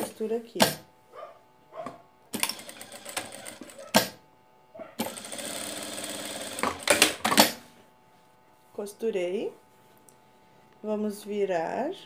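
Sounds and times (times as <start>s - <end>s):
sewing machine stitching: 2.4s - 4.2s, 5.0s - 7.6s.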